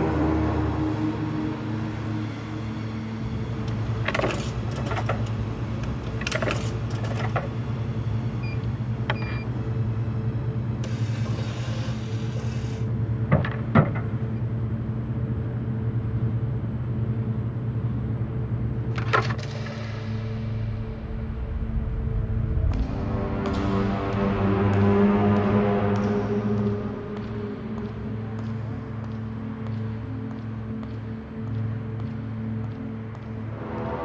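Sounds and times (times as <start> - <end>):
vending machine humming: 0.0 - 22.2.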